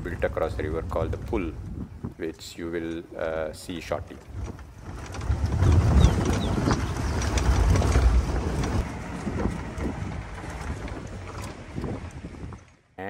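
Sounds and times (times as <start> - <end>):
wind buffeting microphone: 0.0 - 12.8
jeep engine and tyre rumble: 0.0 - 13.0.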